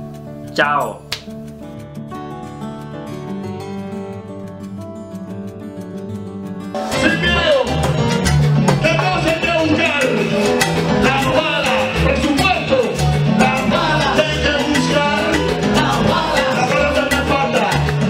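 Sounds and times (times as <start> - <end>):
latin dance music: 6.6 - 18.0.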